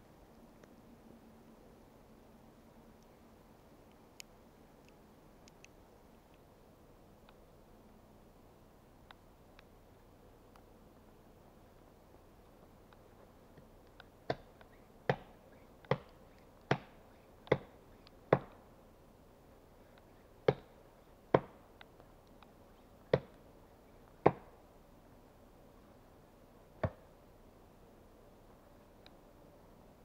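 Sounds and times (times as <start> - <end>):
axe chopping wood: 15.1 - 15.3, 15.9 - 16.1, 16.7 - 17.7, 20.5 - 20.7, 24.2 - 24.5.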